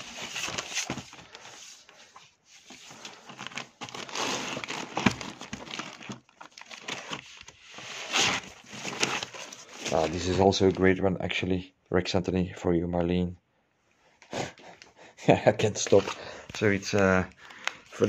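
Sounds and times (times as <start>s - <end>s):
plastic sleeves crinkling: 0.0s - 11.0s, 15.6s - 18.0s.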